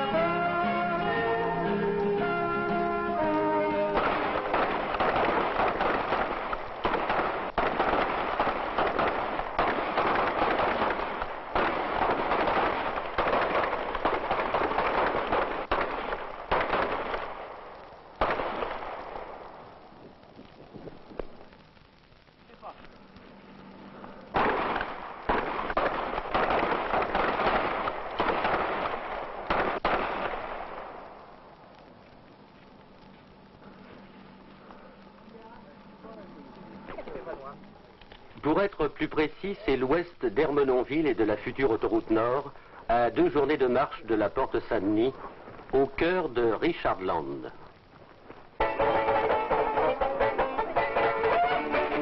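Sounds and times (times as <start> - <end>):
crackling din: 0.0 - 52.0
revolvers firing blanks: 3.7 - 19.8, 23.6 - 31.7.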